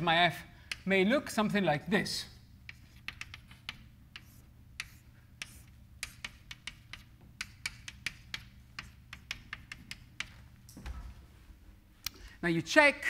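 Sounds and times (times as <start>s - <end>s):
chalk tapping on blackboard: 0.7s - 0.9s, 2.6s - 10.4s.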